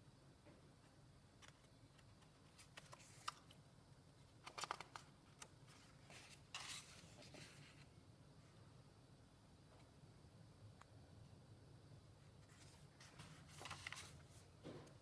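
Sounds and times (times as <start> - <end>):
paper clicks: 1.4 - 3.6, 4.3 - 7.0, 13.1 - 14.2
paper crackling: 1.4 - 3.6, 12.5 - 14.4.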